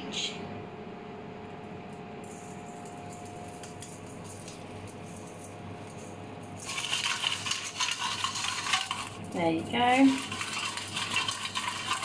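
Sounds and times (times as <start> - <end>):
steady background hum: 0.0 - 12.0
seasoning pattering onto food: 2.9 - 12.0.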